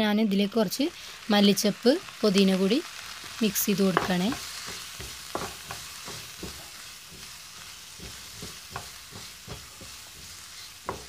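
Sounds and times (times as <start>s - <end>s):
vegetables sizzling in oil: 0.0s - 11.0s
spatula scraping a pan: 4.0s - 11.0s.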